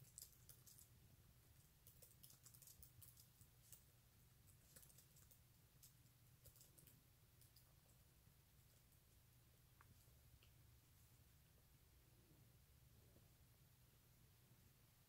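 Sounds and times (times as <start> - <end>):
soft irregular clicks: 0.0 - 0.9, 1.6 - 9.0, 9.7 - 10.6.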